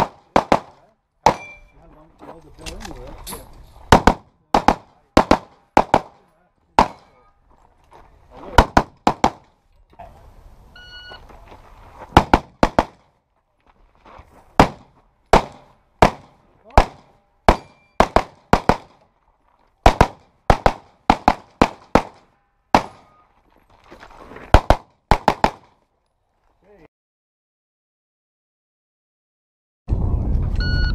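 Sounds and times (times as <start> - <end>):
handgun firing rapidly: 16.8 - 18.9.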